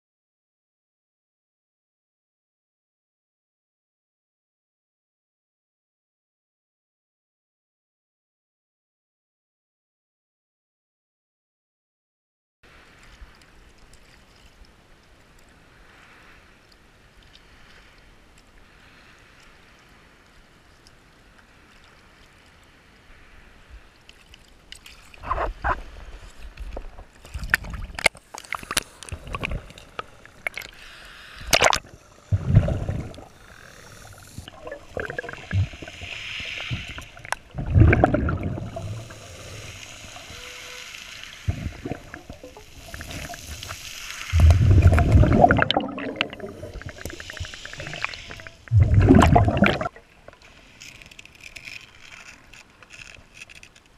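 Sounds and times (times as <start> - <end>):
faint steady hiss: 12.7 - 53.9
water sloshing and splashing: 24.0 - 30.8, 31.4 - 53.7.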